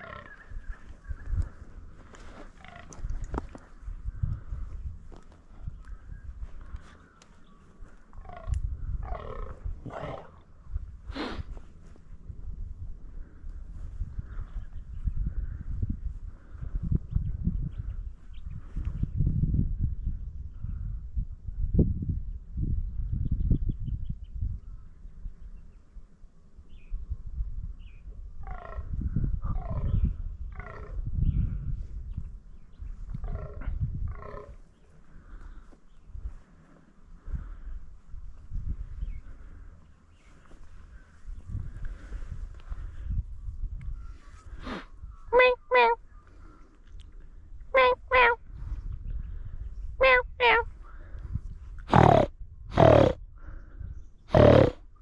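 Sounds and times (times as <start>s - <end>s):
deer croaking: 0.0s - 0.4s, 2.6s - 3.0s, 8.2s - 10.5s, 33.2s - 34.6s, 44.6s - 46.0s, 47.8s - 48.4s, 50.0s - 50.7s, 51.9s - 53.2s, 54.3s - 54.8s.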